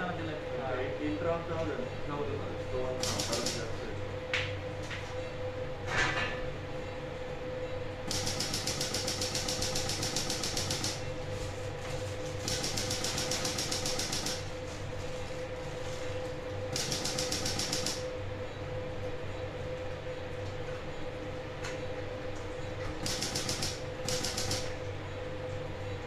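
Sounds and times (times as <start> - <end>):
steady equipment hum: 0.0 - 26.0
rapid run of clicks: 3.0 - 3.7, 8.1 - 11.0, 12.4 - 14.5, 16.7 - 18.1, 23.0 - 24.8.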